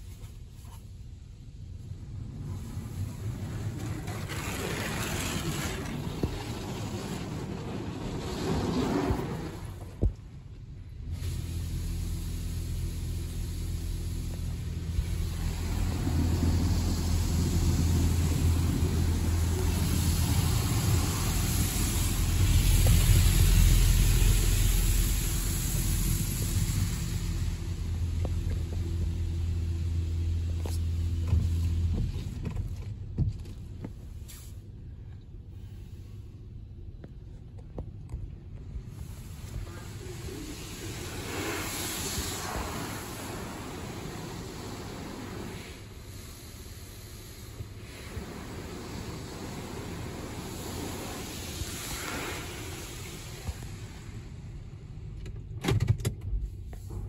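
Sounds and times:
car wash low hum: 0:00.0 - 0:57.0
spray hissing on car body: 0:11.0 - 0:31.8, 0:38.8 - 0:54.5
water hissing on glass: 0:39.0 - 0:54.0.

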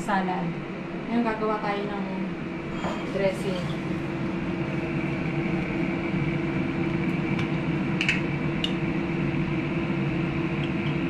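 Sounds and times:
kitchen appliance humming: 0:02.3 - 0:11.0
kitchenware clinking: 0:02.7 - 0:03.7.

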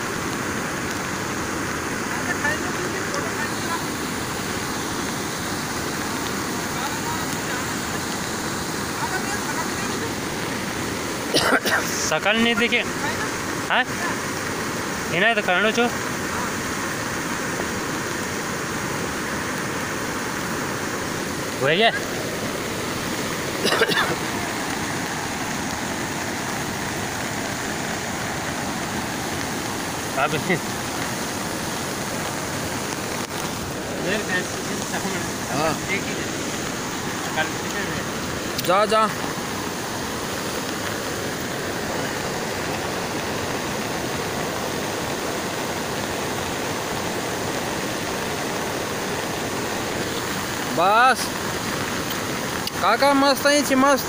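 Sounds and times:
river water rushing: 0:00.0 - 0:54.0.

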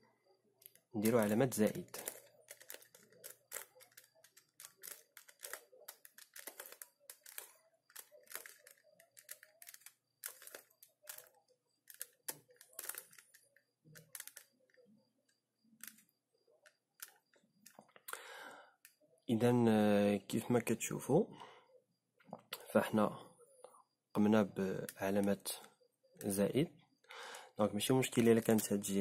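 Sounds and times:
plastic puzzle cube clicking: 0:00.6 - 0:14.8, 0:15.8 - 0:16.1, 0:17.0 - 0:17.8.

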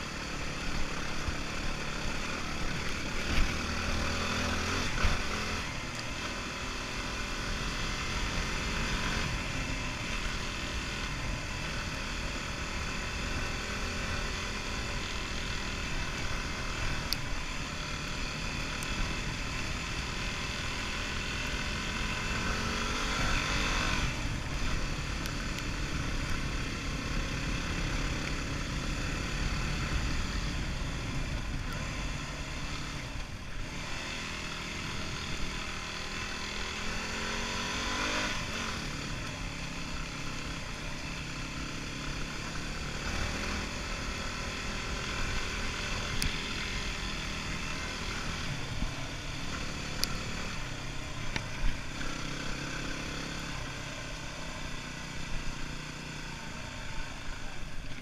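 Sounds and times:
dirt bike engine accelerating: 0:00.0 - 0:58.0.

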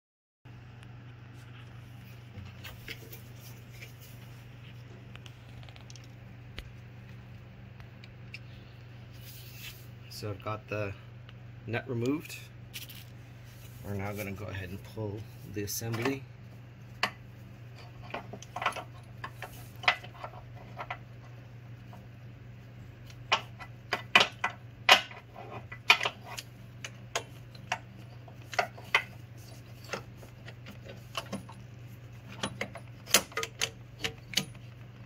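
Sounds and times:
metallic clicks and knocks: 0:17.8 - 0:21.0, 0:32.3 - 0:34.8.

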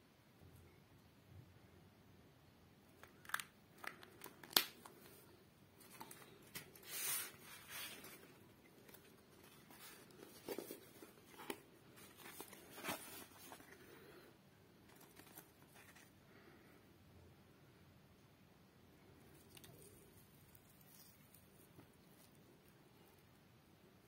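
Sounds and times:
paper and cardboard rustling: 0:05.8 - 0:14.0, 0:14.9 - 0:16.1.

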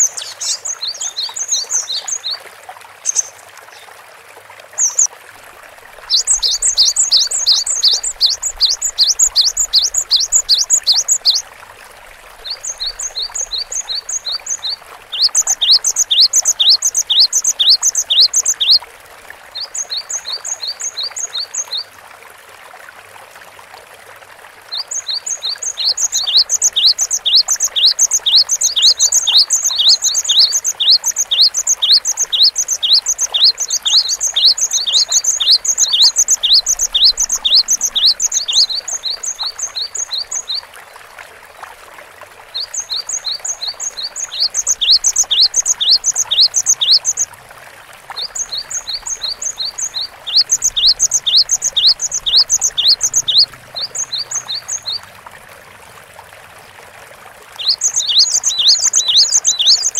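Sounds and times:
great tit singing: 0:00.0 - 0:02.4, 0:04.8 - 0:05.1, 0:06.1 - 0:11.4, 0:12.4 - 0:18.8, 0:19.6 - 0:21.8, 0:24.7 - 0:40.6, 0:42.6 - 0:47.3, 0:48.1 - 0:55.0, 0:57.6 - 0:59.9.

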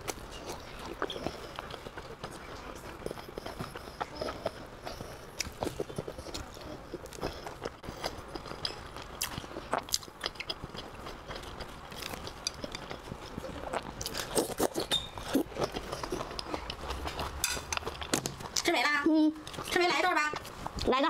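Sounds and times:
person chewing food: 0:00.0 - 0:18.7, 0:19.4 - 0:20.9.

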